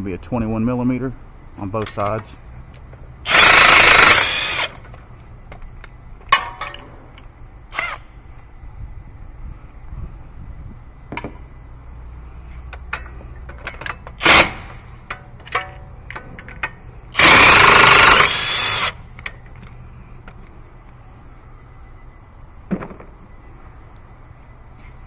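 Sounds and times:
hand tools clinking and knocking: 12.7s - 14.2s, 15.0s - 16.8s.

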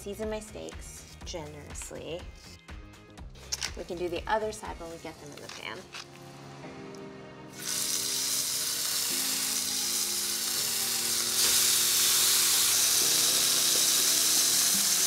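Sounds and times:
steak sizzling in skillet: 7.5s - 15.0s.

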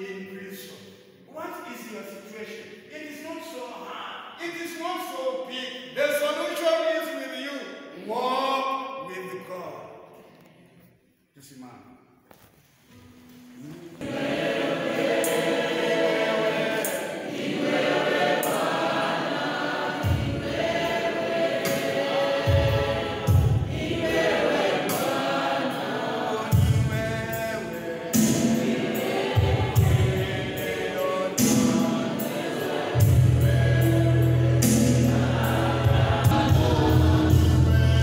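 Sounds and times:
congregation singing a hymn: 13.6s - 38.0s
low beats: 32.7s - 38.0s.

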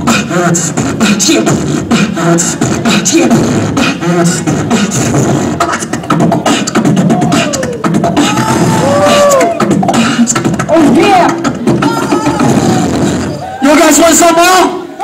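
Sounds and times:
beatboxing: 0.0s - 13.4s.

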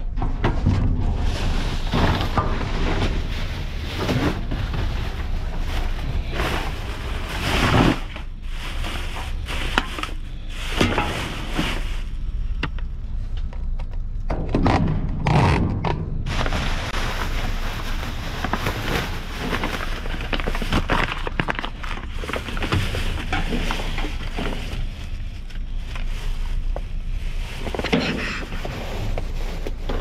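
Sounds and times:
cardboard boxes scraping: 1.2s - 10.0s
plastic bags crinkling: 1.2s - 12.5s, 16.2s - 30.0s.

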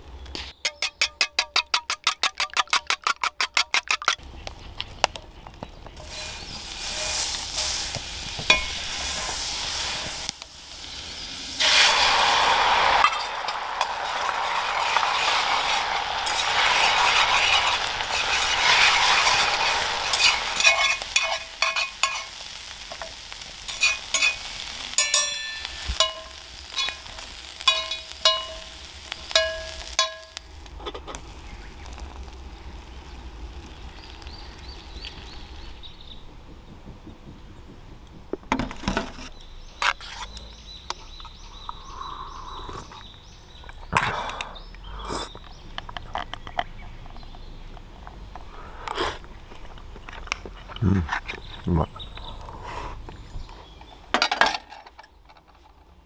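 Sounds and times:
eggs sizzling in frying pan: 0.0s - 38.4s
metal utensil scraping pan: 0.6s - 4.2s, 6.0s - 10.2s, 12.8s - 31.2s, 38.8s - 40.4s.

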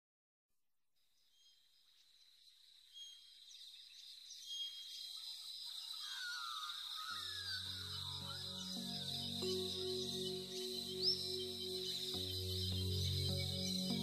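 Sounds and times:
birds chirping: 2.8s - 14.0s
soft new-age music chords: 7.2s - 14.0s.

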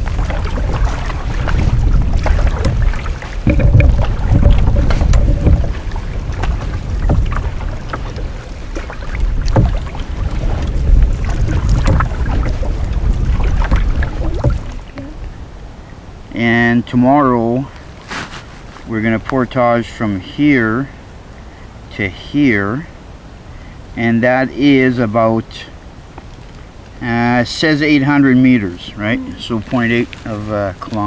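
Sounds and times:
water splashing against canoe hull: 0.0s - 15.6s
wind buffeting microphone: 0.0s - 16.2s.

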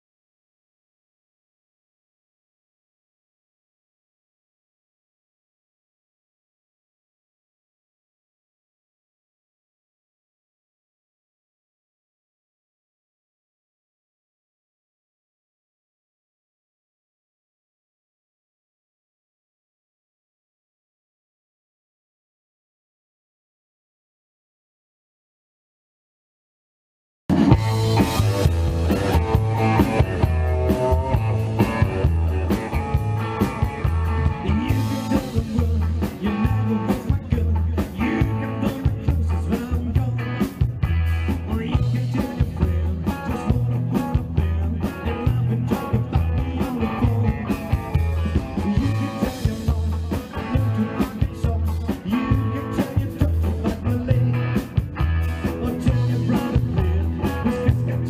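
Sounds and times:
electric guitar: 27.3s - 58.0s
live rock and roll band: 27.3s - 58.0s
upright double bass: 27.3s - 58.0s
man singing: 27.9s - 58.0s.

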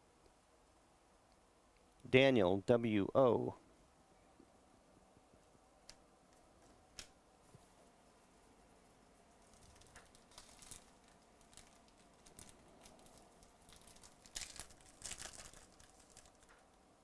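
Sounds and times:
foil wrapper crinkling: 9.4s - 16.7s.

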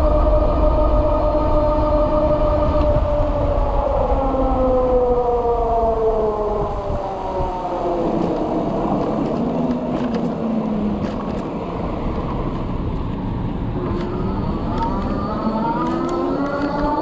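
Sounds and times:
wind rush: 0.0s - 17.0s
electric motor whining: 13.8s - 17.0s.

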